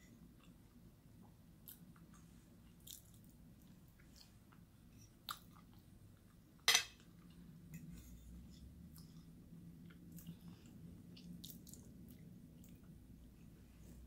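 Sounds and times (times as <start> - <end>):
person chewing food: 1.6 - 6.4, 7.0 - 13.4.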